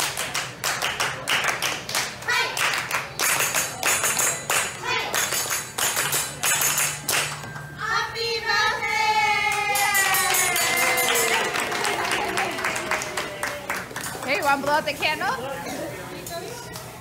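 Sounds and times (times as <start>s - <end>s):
hand clapping: 0.0s - 7.6s, 9.5s - 14.6s
women singing together: 7.8s - 10.9s.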